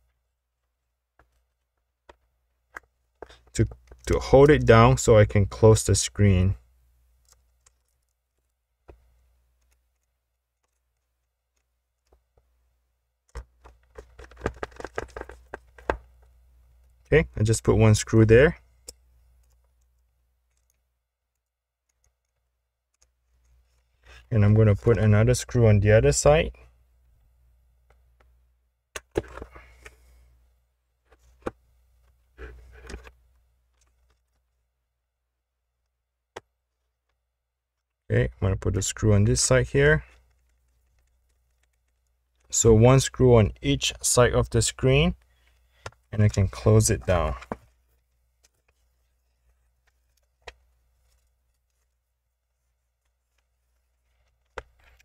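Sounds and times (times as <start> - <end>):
faint handling noises: 7.2 - 17.8, 29.0 - 38.1, 39.5 - 42.7, 44.9 - 55.0.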